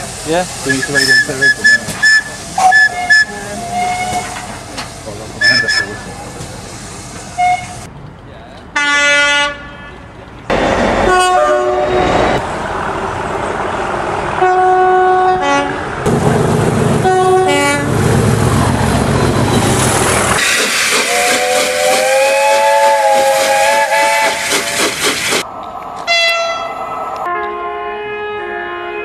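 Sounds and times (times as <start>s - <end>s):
rail noise rumble: 0.0s - 29.0s
train horn blasts: 0.7s - 4.5s, 8.8s - 10.0s, 11.0s - 12.2s, 14.4s - 15.9s, 17.0s - 17.9s, 21.1s - 24.8s, 26.1s - 29.0s.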